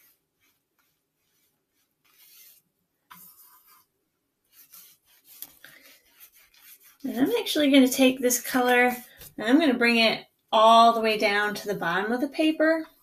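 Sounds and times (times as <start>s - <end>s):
paintbrush stroking paper: 0.0s - 9.6s.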